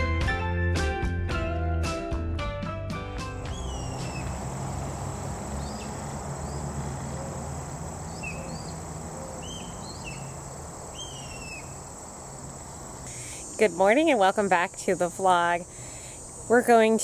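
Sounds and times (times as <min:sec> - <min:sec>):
birds chirping: 0:03.4 - 0:17.0
insects droning: 0:03.4 - 0:17.0.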